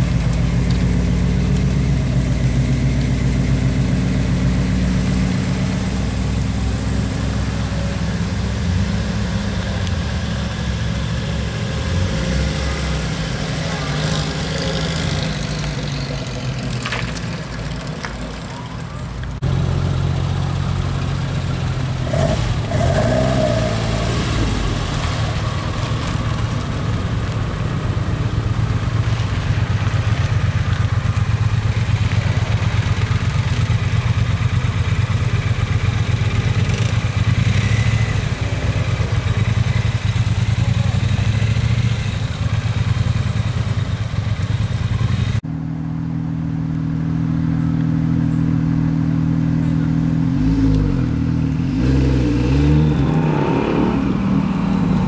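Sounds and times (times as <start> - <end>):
car engine running: 13.4 - 50.4.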